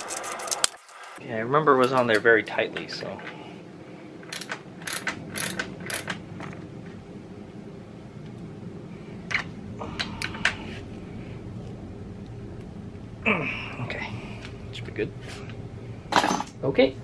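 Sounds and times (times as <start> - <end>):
ratchet wrench clicking: 4.2 - 6.2.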